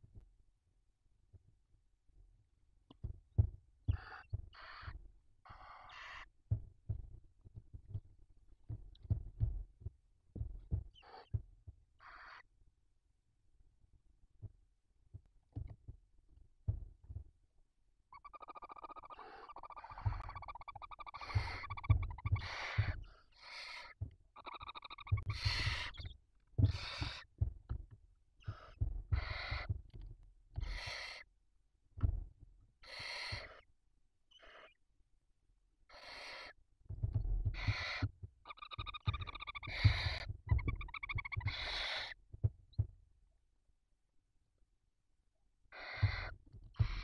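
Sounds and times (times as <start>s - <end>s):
owl chicks hissing screeches: 18.5s - 26.0s, 28.5s - 29.7s, 30.6s - 31.2s, 32.8s - 33.6s, 35.9s - 36.5s, 37.6s - 42.1s, 45.7s - 47.0s
birds shuffling bumps: 18.9s - 23.2s, 24.0s - 30.9s, 37.0s - 43.0s.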